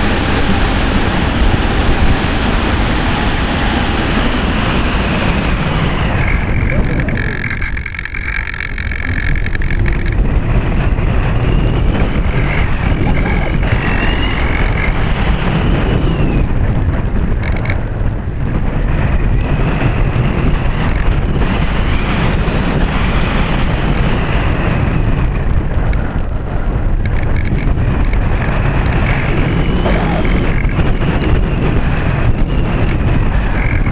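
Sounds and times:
wind buffeting microphone: 0.0s - 33.9s.

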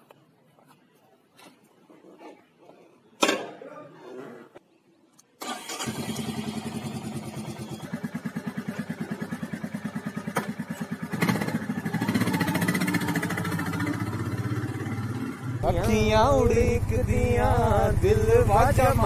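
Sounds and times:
motorcycle electric starter: 5.4s - 8.7s
motorcycle engine idling: 6.0s - 19.0s.

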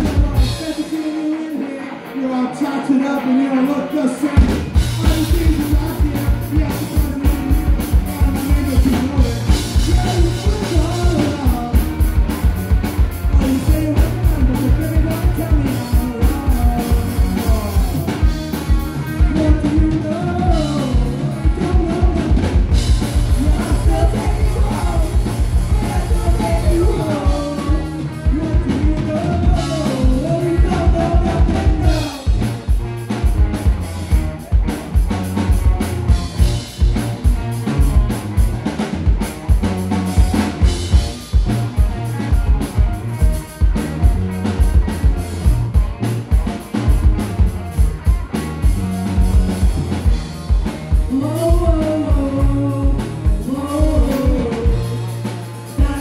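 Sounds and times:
fast drum-kit beat: 0.0s - 1.4s, 4.1s - 56.0s
vocalist singing: 0.0s - 33.2s, 50.6s - 56.0s
electric guitars: 0.0s - 56.0s.

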